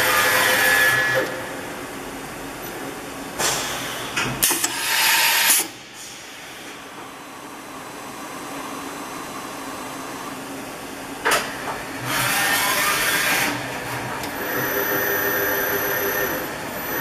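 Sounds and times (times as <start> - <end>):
machine humming: 6.6 - 17.0
machine whining: 12.0 - 17.0.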